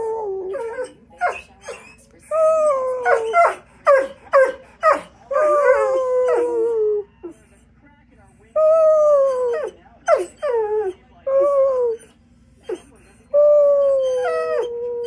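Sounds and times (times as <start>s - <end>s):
dog howling: 0.0s - 7.1s, 8.6s - 12.1s, 12.7s - 15.0s
dog yipping: 0.5s - 2.0s, 2.8s - 6.5s, 9.2s - 10.5s.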